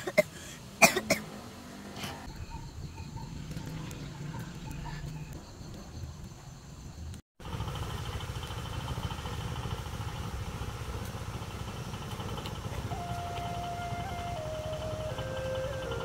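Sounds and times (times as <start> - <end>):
low engine-like rumble: 7.0 - 16.0.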